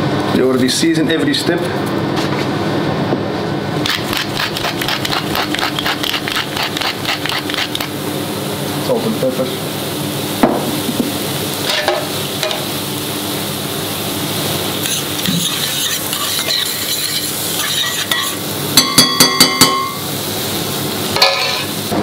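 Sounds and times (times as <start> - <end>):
shallots sizzling in oil: 3.8 - 22.0
metal spoon stirring: 14.8 - 19.8
spoon clinking against pan: 17.8 - 20.0.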